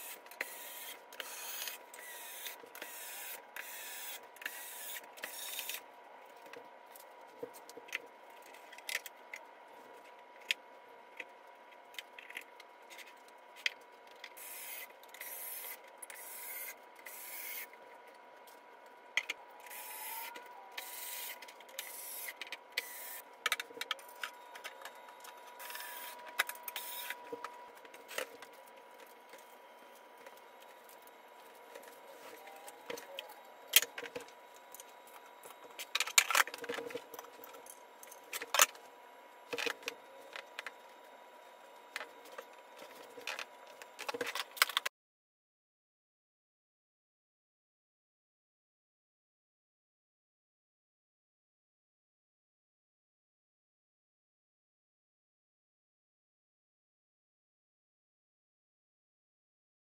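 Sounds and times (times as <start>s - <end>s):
electric screwdriver whirring: 0.0s - 5.8s, 14.4s - 17.7s, 25.6s - 27.2s.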